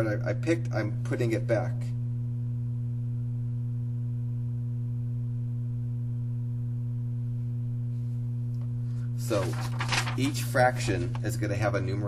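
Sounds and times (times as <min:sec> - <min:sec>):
electrical hum: 0:00.0 - 0:12.0.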